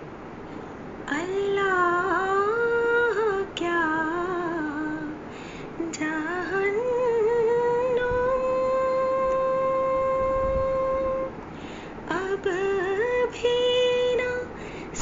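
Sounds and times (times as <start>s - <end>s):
high voice singing wordless melody: 5.8s - 11.4s, 12.1s - 15.0s.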